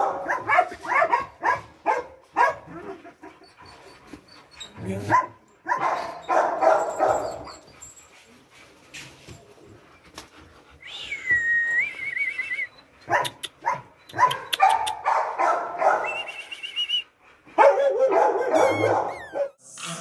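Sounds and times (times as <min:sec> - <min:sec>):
dog yelping and barking: 0:00.0 - 0:08.0, 0:12.8 - 0:16.2, 0:17.6 - 0:19.6
dog whining: 0:02.7 - 0:05.1, 0:06.0 - 0:08.0, 0:18.4 - 0:19.6.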